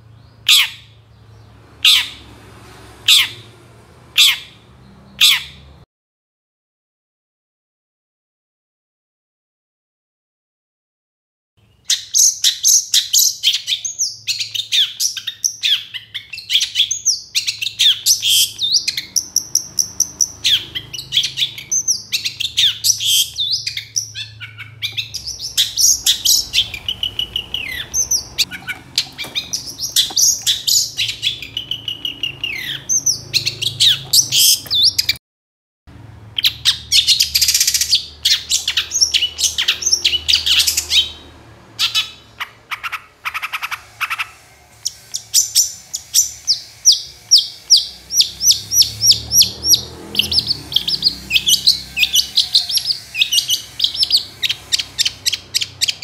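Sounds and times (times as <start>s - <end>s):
harsh scratchy bird calls: 0.0s - 5.8s, 11.6s - 35.2s, 36.4s - 56.0s
bird singing with trills: 11.6s - 35.2s, 36.4s - 56.0s.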